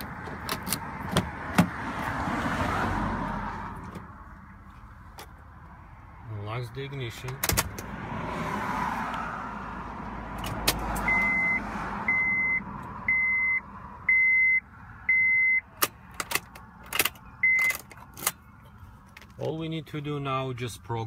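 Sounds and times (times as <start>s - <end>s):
dashboard warning chime beeping: 11.0s - 15.8s, 17.2s - 18.5s.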